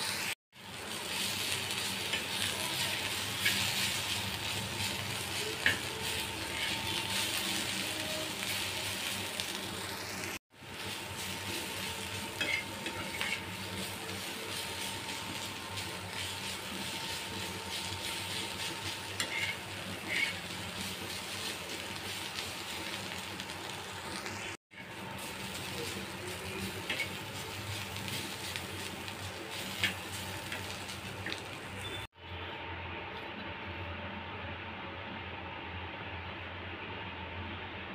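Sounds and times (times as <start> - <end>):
vegetables sizzling in oil: 0.0 - 32.2
metal spatula scraping pan: 1.7 - 8.6, 11.4 - 20.8.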